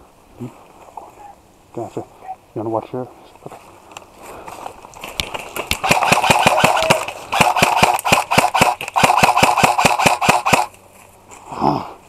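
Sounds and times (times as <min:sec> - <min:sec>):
airsoft rifle firing bursts: 0:05.7 - 0:10.7.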